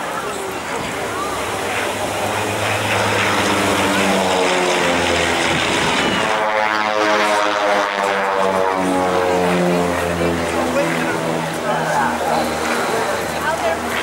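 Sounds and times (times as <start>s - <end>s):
propeller planes flying overhead: 0.0s - 14.0s.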